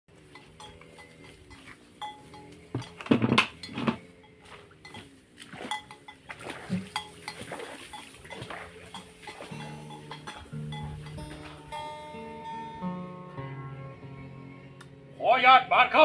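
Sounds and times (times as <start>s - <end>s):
knocks and clatter: 0.4s - 4.0s.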